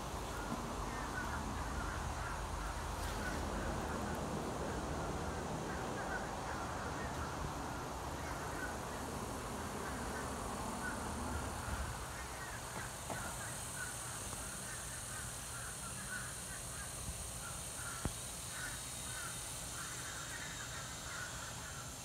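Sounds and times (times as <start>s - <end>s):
steady low rumble: 0.0s - 15.6s.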